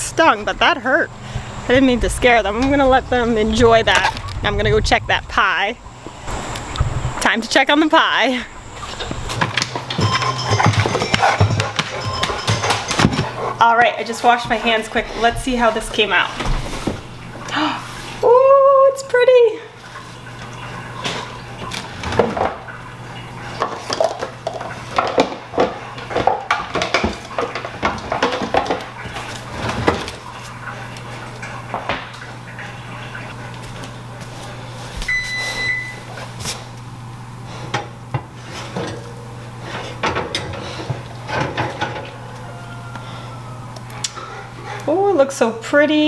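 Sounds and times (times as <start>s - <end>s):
steady low hum: 0.0s - 46.0s
pie dish and oven rack clattering: 9.3s - 15.3s, 38.6s - 42.2s
electronic beep: 35.1s - 36.0s.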